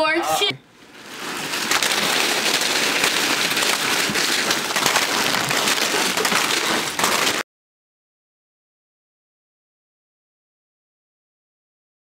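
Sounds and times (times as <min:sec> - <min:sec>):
chip bags crinkling: 0:00.8 - 0:07.4.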